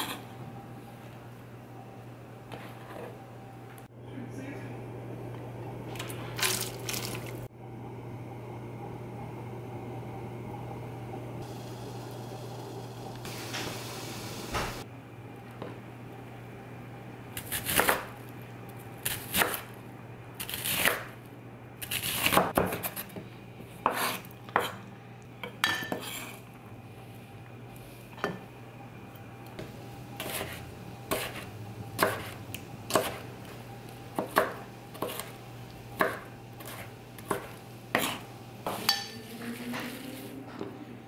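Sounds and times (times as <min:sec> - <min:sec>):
knife chopping on wooden board: 0:22.0 - 0:23.0, 0:30.2 - 0:31.4, 0:32.0 - 0:33.2, 0:34.2 - 0:35.3, 0:36.0 - 0:38.8.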